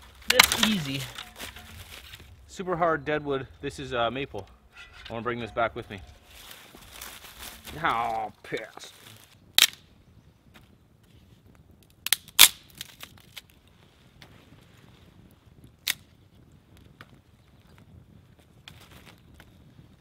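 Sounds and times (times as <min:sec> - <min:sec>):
dry sticks snapping: 0:00.0 - 0:02.5, 0:06.0 - 0:09.8, 0:11.8 - 0:13.5, 0:15.8 - 0:16.1.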